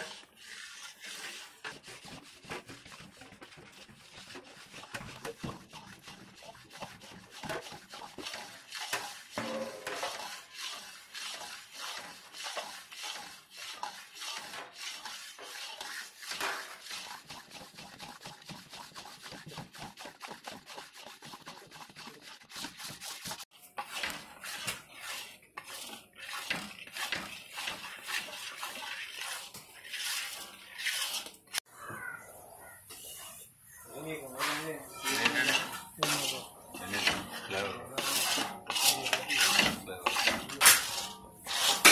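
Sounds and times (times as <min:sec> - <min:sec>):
batter slapping: 0:00.0 - 0:31.6
metal whisk clinking on pan: 0:07.0 - 0:16.8, 0:34.4 - 0:41.9.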